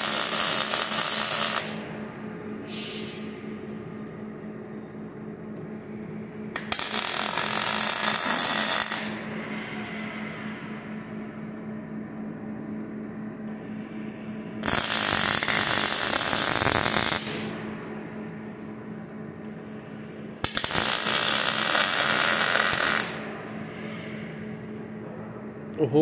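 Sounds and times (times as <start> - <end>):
welding torch crackling hiss: 0.0 - 1.8, 6.6 - 9.2, 14.6 - 17.5, 20.4 - 23.3
steady low hum: 0.0 - 26.0.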